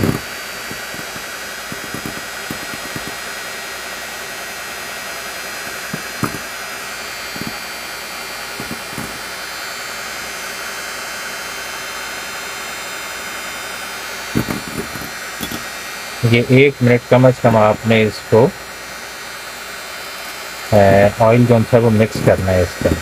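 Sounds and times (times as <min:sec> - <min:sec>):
electric hand mixer running: 0:00.0 - 0:23.0
short knocks: 0:08.6 - 0:09.2.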